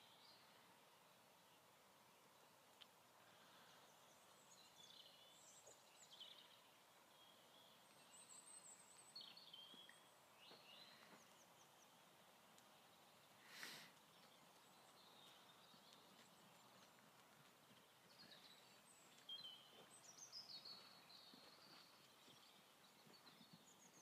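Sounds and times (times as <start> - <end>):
faint birds chirping: 0.0 - 24.0.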